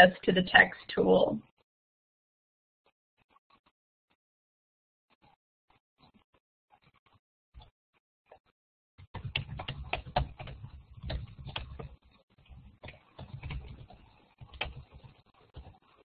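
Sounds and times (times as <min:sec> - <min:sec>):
computer keyboard typing: 0:09.0 - 0:15.8.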